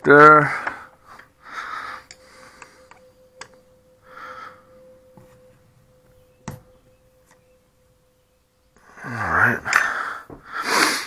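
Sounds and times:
faint steady hum: 0.0s - 11.0s
breath: 0.5s - 2.9s, 4.0s - 4.8s, 9.7s - 11.0s.

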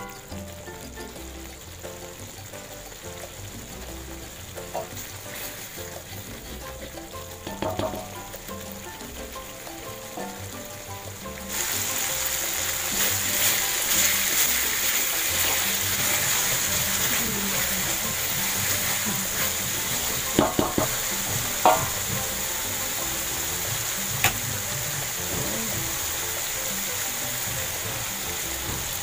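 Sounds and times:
paste sizzling in hot oil: 0.0s - 29.0s
spatula knocking on a wok: 4.6s - 5.5s, 6.3s - 8.4s, 13.4s - 25.4s
spatula scraping a wok: 4.6s - 8.0s, 11.5s - 24.0s.

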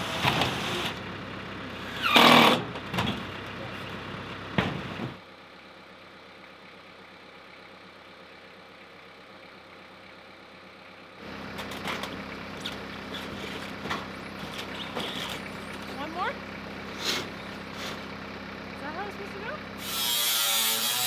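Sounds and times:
engine idling: 0.0s - 21.0s
knocks and clatter: 11.5s - 16.0s.

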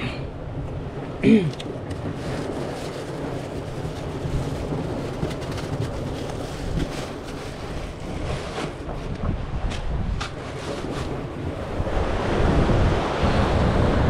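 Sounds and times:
wind rumbling on microphone: 0.0s - 14.0s
sea washing: 0.8s - 9.2s.

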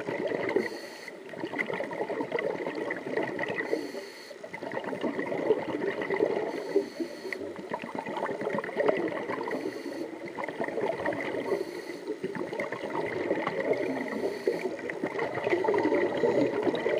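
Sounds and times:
underwater bubbles gurgling: 0.0s - 16.9s.

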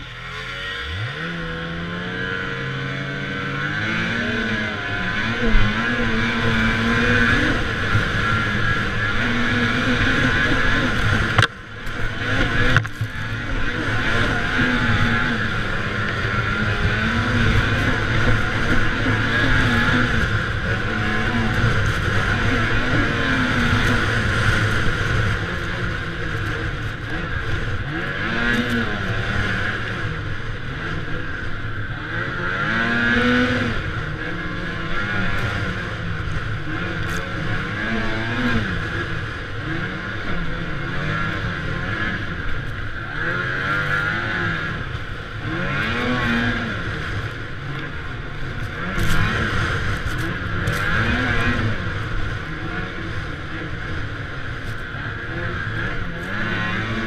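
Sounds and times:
snow vehicle engine revving: 0.0s - 57.0s.

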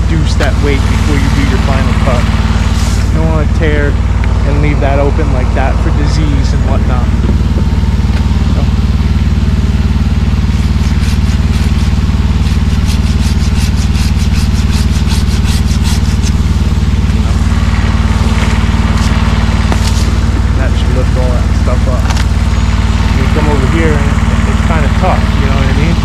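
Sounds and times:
engine low drone: 0.0s - 26.0s
hand saw cutting wood: 10.4s - 17.3s.

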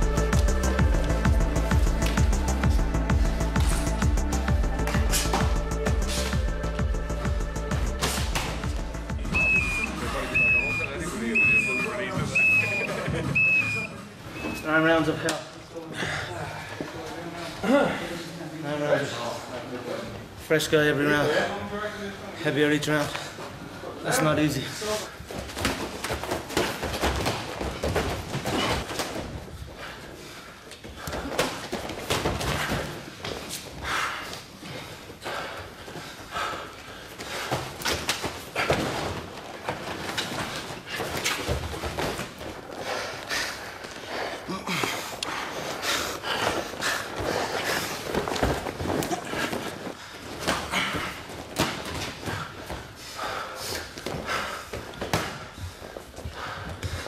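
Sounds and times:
hard breathing: 0.7s - 10.6s, 28.0s - 57.0s
feet moving on mat: 25.2s - 57.0s.

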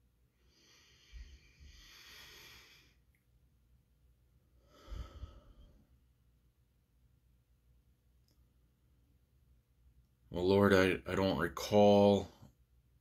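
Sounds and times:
man breathing close to microphone: 0.3s - 3.1s, 4.5s - 6.0s.

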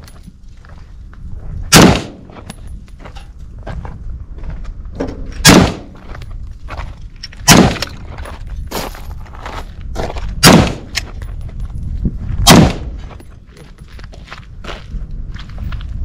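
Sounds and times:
rifle shots: 1.7s - 2.4s, 5.4s - 6.0s, 7.4s - 8.0s, 10.4s - 11.0s, 12.4s - 13.0s.

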